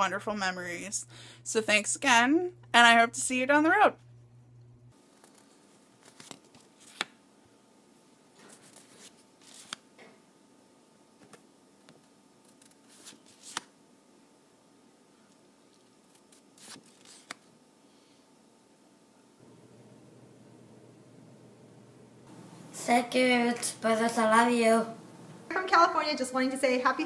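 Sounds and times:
paper cards rustling and snapping: 5.2 - 7.2, 8.4 - 9.9, 11.2 - 13.7, 15.8 - 17.5.

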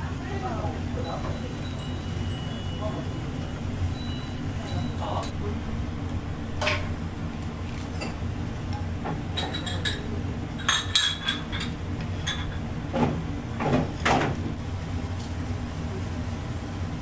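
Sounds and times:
chopsticks and bowl clinking on pot: 9.4 - 12.6.

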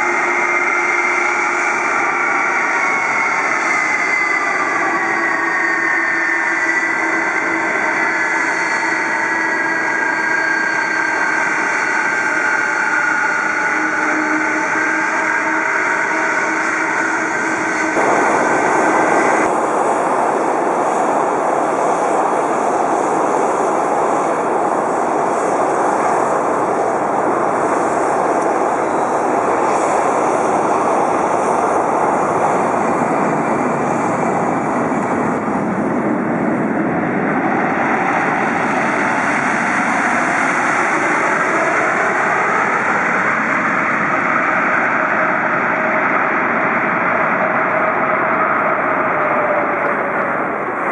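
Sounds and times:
jet engines roaring: 0.0 - 50.9
steady tones: 13.0 - 19.6.

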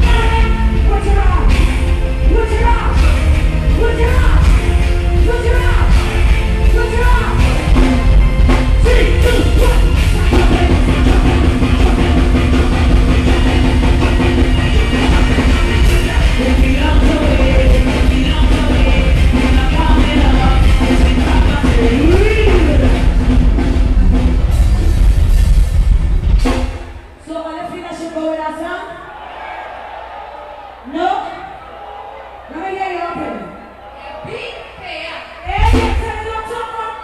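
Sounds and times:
heavy bass: 0.0 - 27.3, 35.4 - 37.0
live band music: 0.0 - 28.0, 35.4 - 37.0
woman singing: 13.2 - 23.0.

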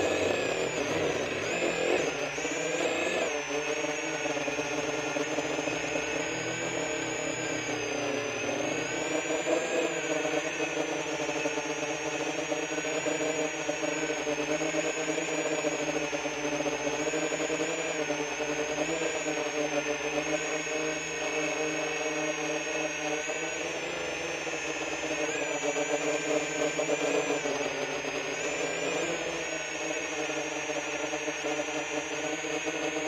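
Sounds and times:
drone propellers whirring: 0.0 - 33.0.

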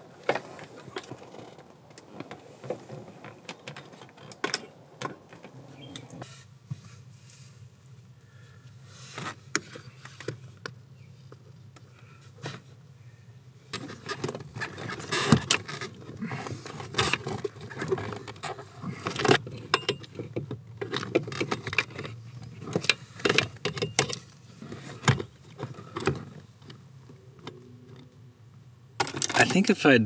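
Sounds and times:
metal clicks and knocks of lock: 29.0 - 29.8.

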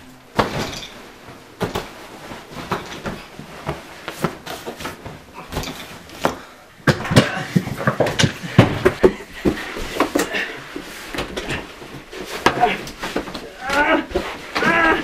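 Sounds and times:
knocks and thumps on furniture: 0.3 - 10.4
rustling of things moved: 0.3 - 15.0.

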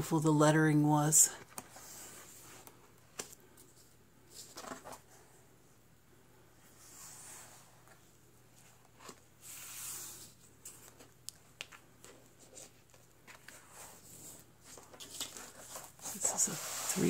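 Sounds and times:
paper crinkling: 8.6 - 17.0.

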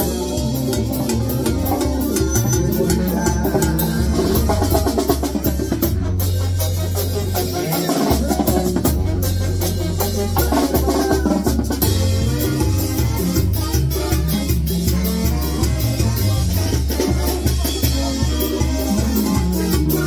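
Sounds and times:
drum kit: 0.0 - 20.0
trumpets and trombones playing: 0.0 - 20.0
tuba bass notes: 0.0 - 20.0.

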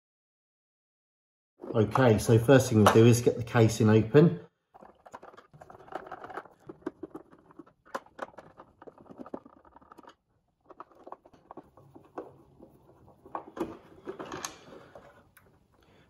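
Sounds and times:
hands handling plastic casing: 4.7 - 15.7.

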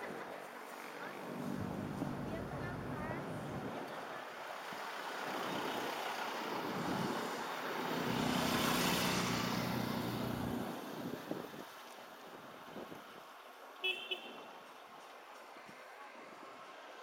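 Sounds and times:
road and wind noise: 0.0 - 17.0
small motorcycle passing: 1.2 - 3.6, 5.5 - 11.4.

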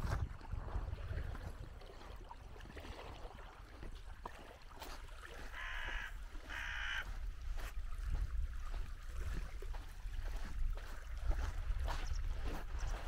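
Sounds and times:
wind rumble on microphone: 0.0 - 13.0
crow cawing: 5.5 - 7.2.

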